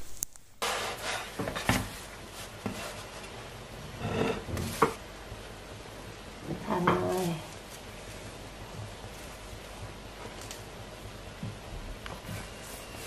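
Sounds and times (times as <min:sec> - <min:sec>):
wooden spatula tapping and scraping: 0:00.0 - 0:03.4, 0:04.0 - 0:05.0
steady faint hiss: 0:00.0 - 0:13.0.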